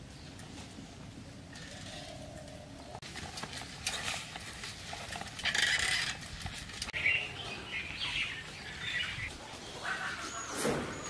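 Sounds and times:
birds chirping: 6.8 - 11.0.

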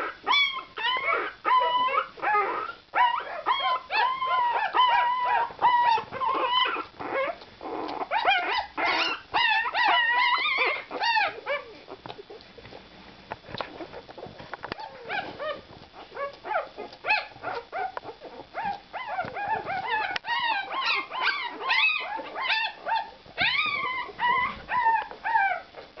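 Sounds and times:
puppies whimpering and squealing: 0.0 - 12.7, 13.6 - 26.0.

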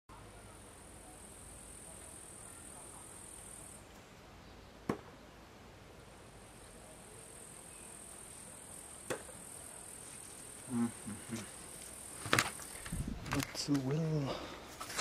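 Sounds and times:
insects chirring: 0.6 - 3.8, 7.0 - 14.6.

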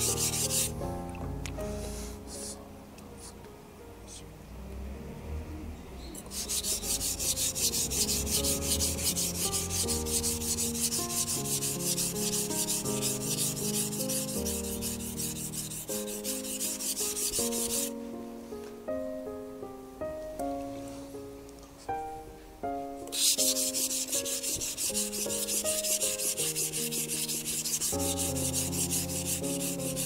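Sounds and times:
soft piano music: 0.0 - 30.0
knife scraping on whetstone: 6.2 - 17.9, 23.1 - 30.0.

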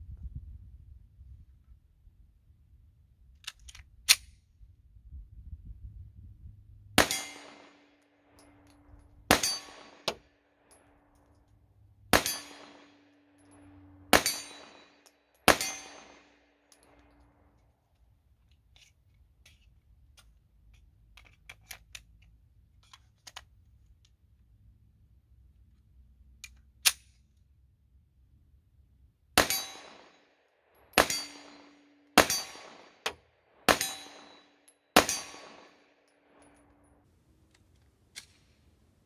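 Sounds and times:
pistol shots: 7.0 - 8.0, 9.3 - 10.3, 12.1 - 13.2, 14.1 - 16.5, 29.4 - 36.4.

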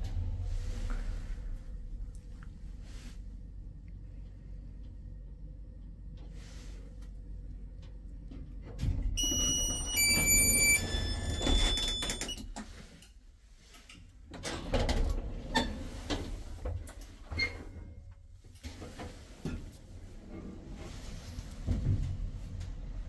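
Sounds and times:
electronic elevator chime: 9.2 - 12.4
sliding door mechanism clicks: 9.2 - 12.8.

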